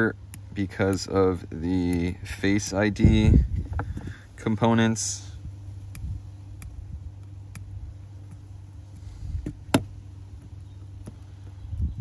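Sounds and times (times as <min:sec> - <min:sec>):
small tools clicking and tapping: 0:00.0 - 0:03.0
steady low hum: 0:00.0 - 0:12.0.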